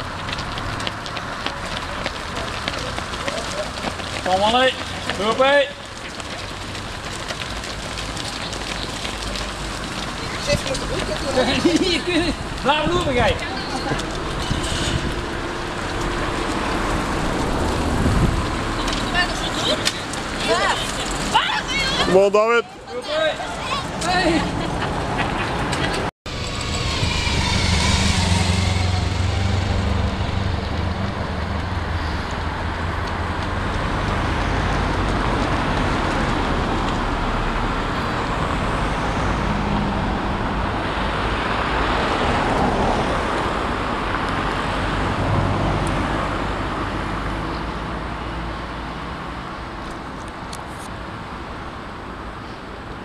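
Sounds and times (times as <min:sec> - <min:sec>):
street traffic noise: 0:00.0 - 0:53.0
motorcycle riding past: 0:26.3 - 0:32.6.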